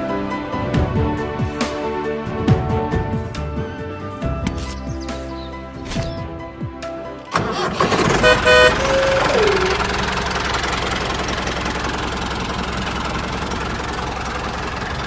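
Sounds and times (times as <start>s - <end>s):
vehicle horn toot: 8.0s - 9.8s.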